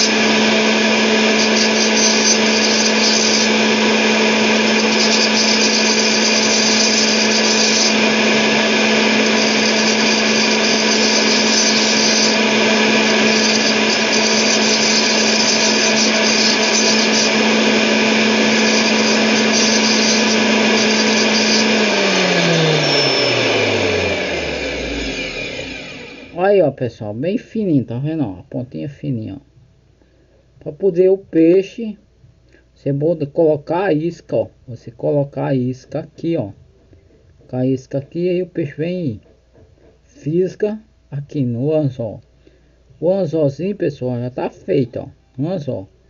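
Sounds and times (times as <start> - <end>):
circular saw running: 0.0 - 26.4
saw motor spinning down: 0.0 - 26.4
wire scraping on saw blade: 0.0 - 26.4.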